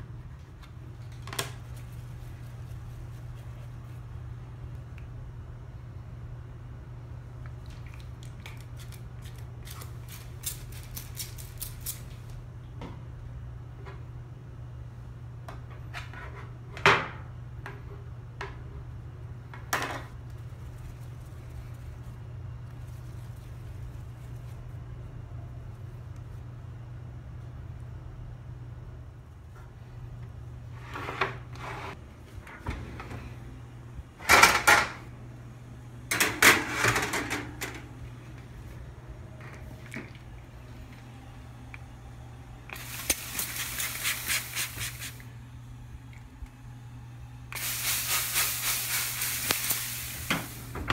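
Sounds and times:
steady low hum: 0.0s - 50.9s
baking sheet scraping on rack: 30.7s - 32.0s, 36.4s - 37.4s.

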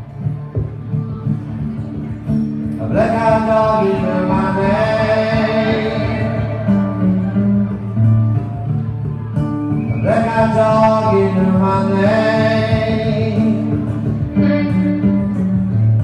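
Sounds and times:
acoustic guitars picking: 0.0s - 16.0s
person singing: 2.8s - 7.4s.

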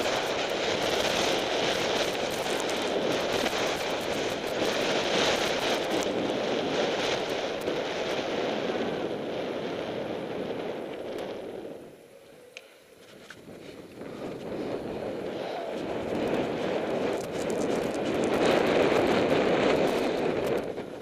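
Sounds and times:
bike rattling over grass: 0.0s - 11.6s, 13.0s - 21.0s.

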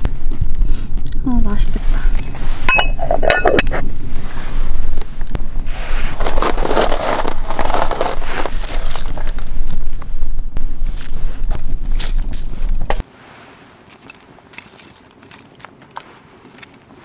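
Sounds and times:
campfire crackling: 0.0s - 17.0s
embers scraped with metal tongs: 1.9s - 10.0s
metal pot and lid clinks: 2.7s - 3.7s.

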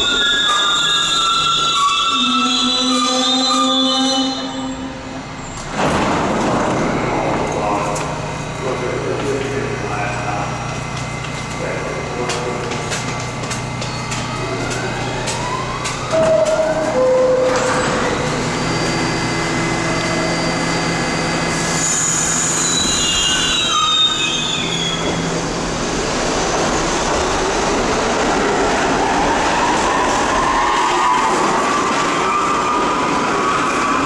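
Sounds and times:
wheel squeal: 0.0s - 5.8s, 13.6s - 25.3s
train motor whine: 0.0s - 34.0s.

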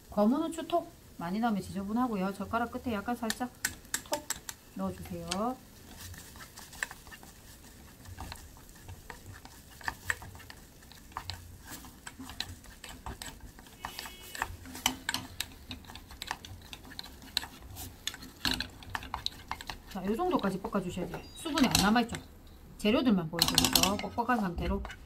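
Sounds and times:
soft sizzle: 0.0s - 25.0s
spoon scraping saucepan: 3.2s - 22.2s.

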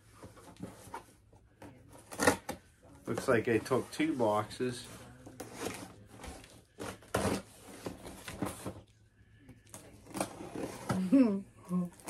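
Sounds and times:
cardboard box rustling and scraping: 3.1s - 8.8s, 10.0s - 11.0s.

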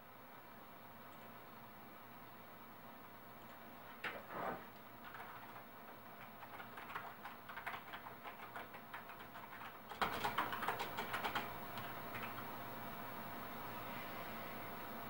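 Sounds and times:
computer keyboard typing: 5.0s - 12.8s.

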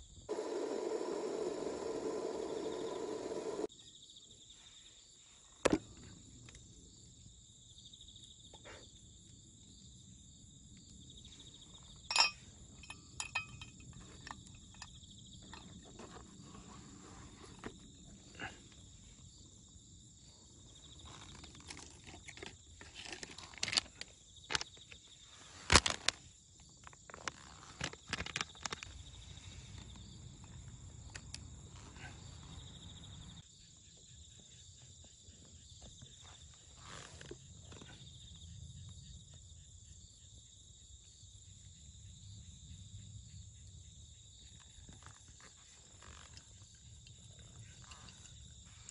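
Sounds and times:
insects trilling: 0.0s - 48.9s
mug and metal stand knocking on wood: 12.1s - 14.9s.

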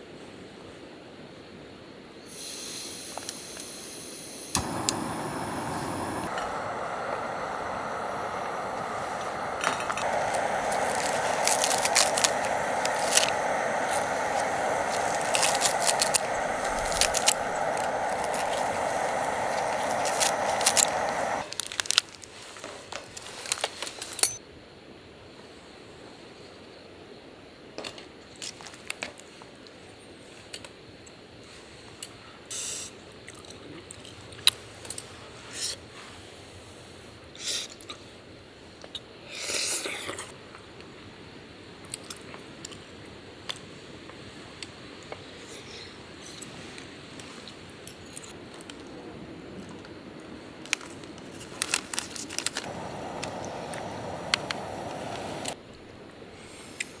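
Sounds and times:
gas hissing from canister valve: 2.2s - 21.5s, 51.7s - 55.6s
gas burner running: 2.3s - 21.6s, 52.3s - 55.6s
stove igniter clicks: 4.5s - 21.4s, 52.7s - 55.6s.

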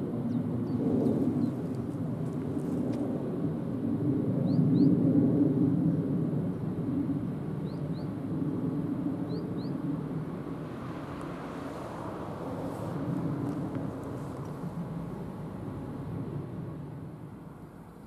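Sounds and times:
bird chirping: 7.6s - 8.1s, 9.3s - 9.8s.

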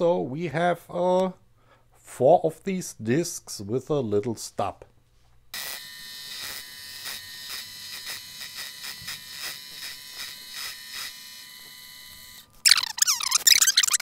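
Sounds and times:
high pulsing lathe buzz: 5.6s - 14.0s.

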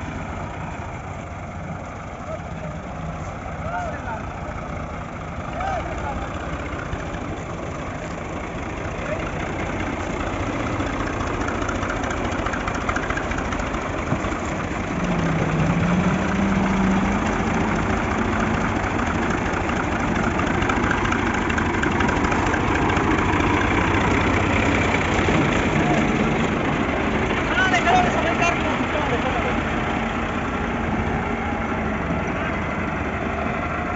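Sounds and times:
diesel tractor engines revving: 0.0s - 33.9s.

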